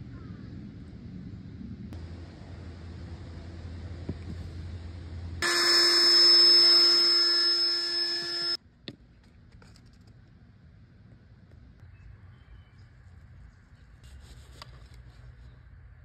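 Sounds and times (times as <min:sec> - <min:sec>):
loud buzzing tone: 0:05.4 - 0:08.6.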